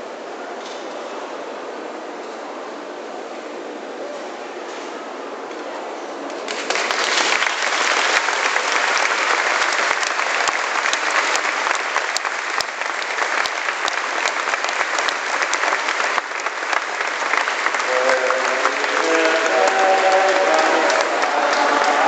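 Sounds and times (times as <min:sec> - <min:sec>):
crowd applauding: 0:06.5 - 0:22.0.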